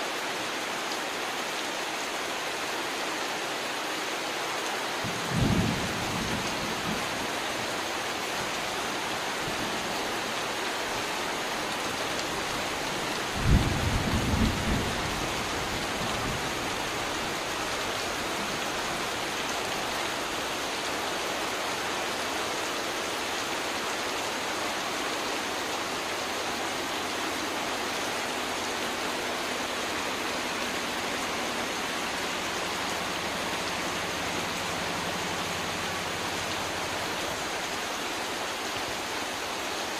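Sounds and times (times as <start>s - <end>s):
heavy rain on water and tarpaulin: 0.0s - 39.9s.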